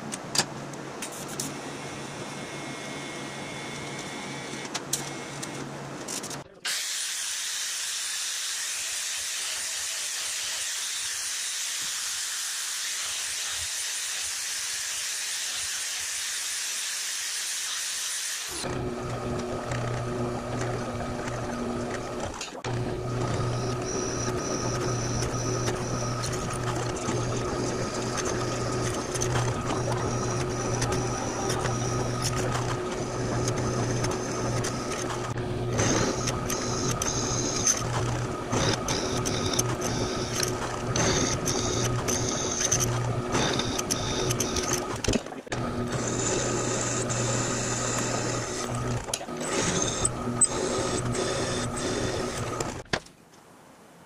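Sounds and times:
welding torch buzzing: 6.7s - 52.9s
drill press whining: 18.5s - 52.8s
angle grinder on metal: 45.6s - 52.8s.

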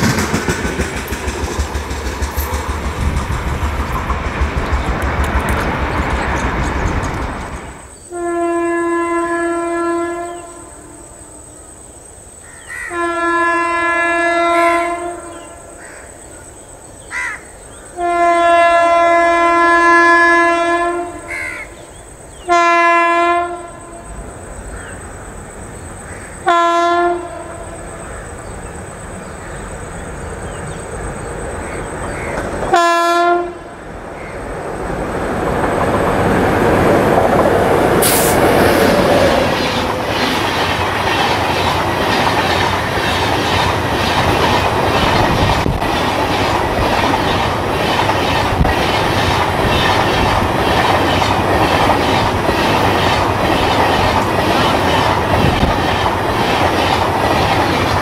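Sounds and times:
train rumble: 0.0s - 58.0s
locomotive horn blasts: 8.1s - 11.1s, 12.9s - 15.5s, 18.0s - 21.3s, 22.5s - 24.0s, 26.5s - 27.7s, 32.7s - 33.8s.

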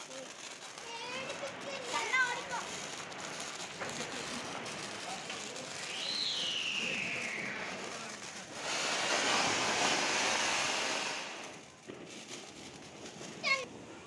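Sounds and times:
firework hissing: 0.0s - 14.0s
falling whistle: 5.7s - 8.1s.

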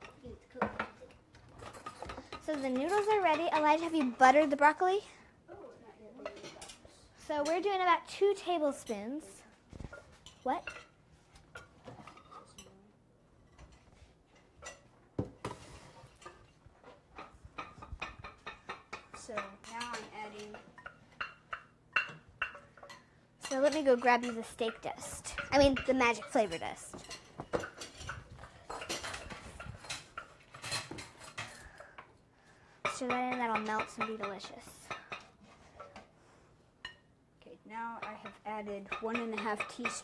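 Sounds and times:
kitchen utensils clinking: 17.2s - 31.7s.

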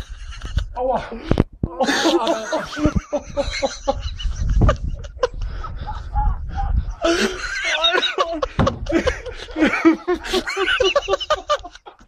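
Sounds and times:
people laughing: 0.0s - 12.0s
sharp knocks: 8.6s - 9.2s.

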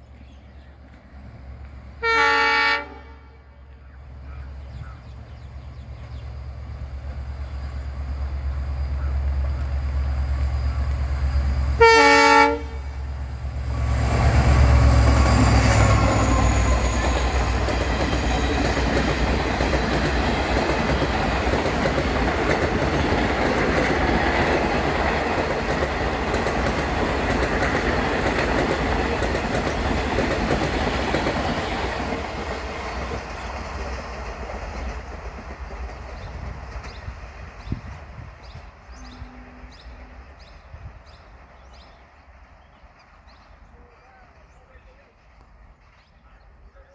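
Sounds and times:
train wheels on rails: 0.0s - 2.6s, 3.6s - 46.9s
diesel locomotive engine rumble: 0.0s - 46.9s
locomotive horn blast: 2.0s - 3.5s, 11.7s - 13.0s, 39.0s - 40.6s.

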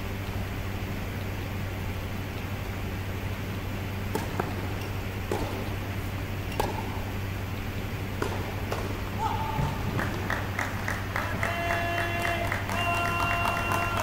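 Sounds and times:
steady low hum: 0.0s - 14.0s
tennis ball pops: 4.1s - 7.1s, 8.1s - 11.1s.

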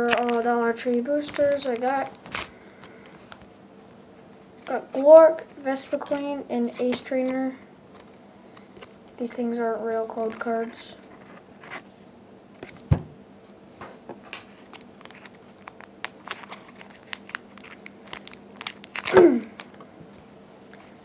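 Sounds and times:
foil wrapper crinkling: 0.0s - 3.5s, 14.4s - 19.8s.

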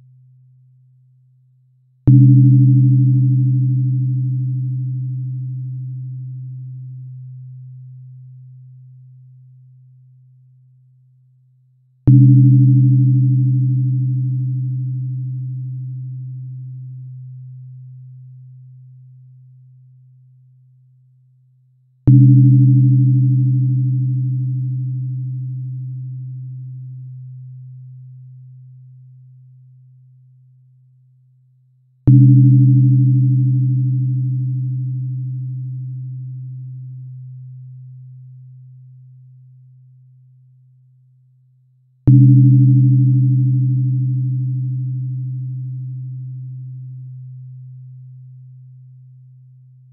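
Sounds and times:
tuning fork ringing hum: 2.0s - 11.4s, 12.0s - 21.0s, 22.0s - 31.1s, 32.0s - 41.0s, 42.0s - 49.9s
tuning fork strike click: 2.1s - 5.0s, 12.1s - 15.6s, 22.1s - 27.0s, 32.1s - 36.6s, 42.1s - 47.0s.

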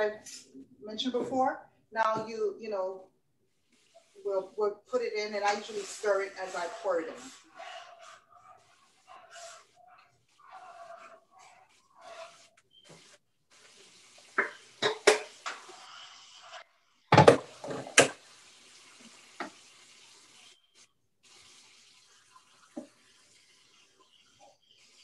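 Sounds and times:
steady hiss of running water: 3.6s - 16.7s, 17.3s - 25.0s
pots and utensils clattering: 14.2s - 15.8s, 17.1s - 18.2s.

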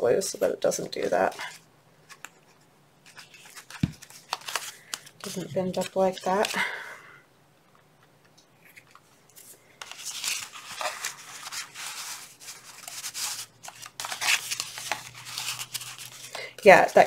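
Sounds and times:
plastic packaging crinkling: 8.8s - 17.0s.

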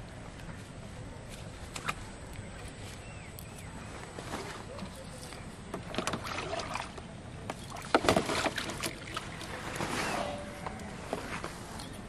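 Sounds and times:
bucket splashing in water: 5.8s - 10.4s.

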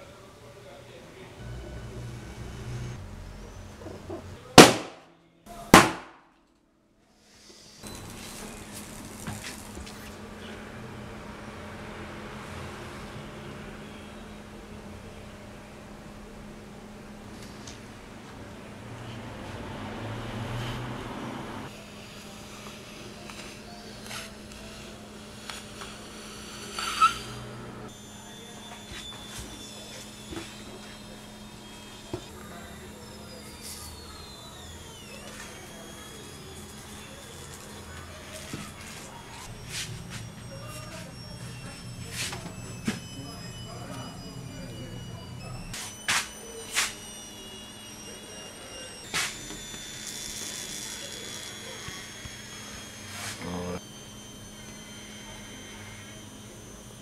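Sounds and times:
steady low hum: 0.0s - 4.5s
balloon bursting: 4.6s - 5.0s, 5.7s - 6.3s
rubber balloon squeaking: 23.4s - 27.5s, 49.1s - 53.8s.

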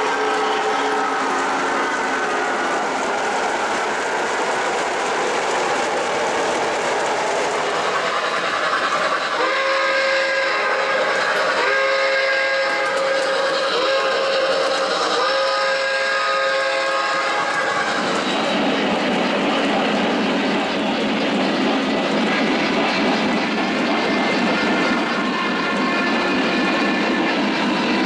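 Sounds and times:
chime steam whistle: 0.0s - 2.9s, 7.8s - 18.6s, 24.0s - 28.0s
model train running on track: 0.0s - 28.0s.

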